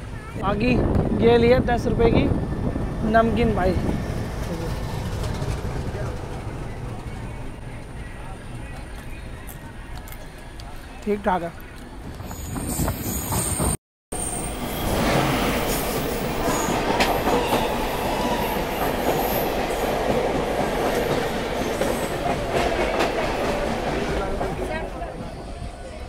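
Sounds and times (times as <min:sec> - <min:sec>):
train wheels rumbling on rails: 0:00.6 - 0:08.9, 0:12.0 - 0:26.0
train knocks: 0:14.9 - 0:24.8.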